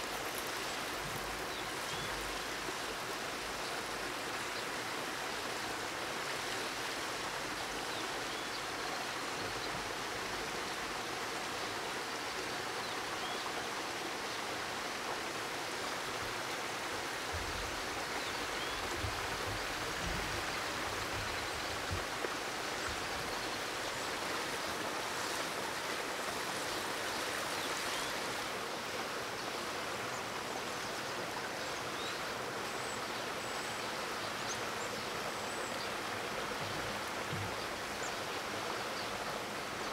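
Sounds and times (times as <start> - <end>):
stream rushing: 0.0 - 39.9
soft low bumps: 18.8 - 22.2.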